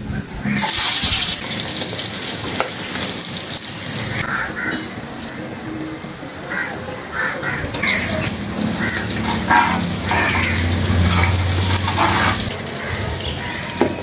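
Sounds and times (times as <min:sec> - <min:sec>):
spices sizzling in hot oil: 0:00.6 - 0:05.3, 0:06.4 - 0:13.7
spoon scraping a pot: 0:07.8 - 0:12.5.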